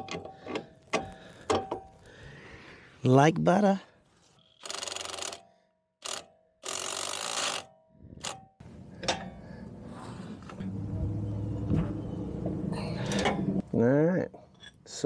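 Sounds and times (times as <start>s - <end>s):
ratchet wrench clicking: 4.6s - 8.4s.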